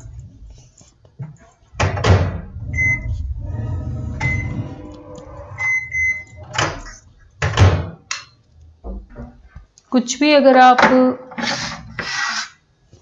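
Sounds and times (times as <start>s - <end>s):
low hum: 0.0s - 1.1s, 1.7s - 9.7s
control panel beeping: 2.6s - 7.0s.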